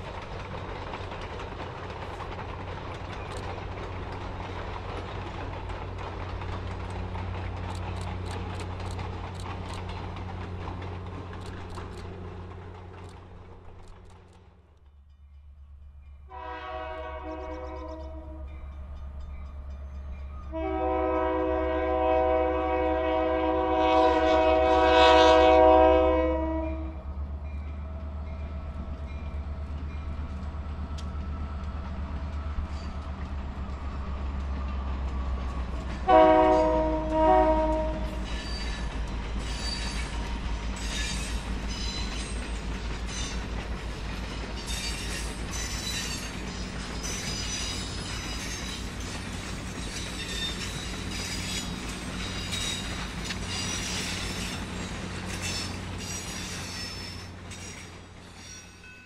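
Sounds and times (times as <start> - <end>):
train wheel clatter: 0.0 - 59.0
locomotive air horn blasts: 16.3 - 18.4, 20.5 - 27.0, 36.0 - 38.2.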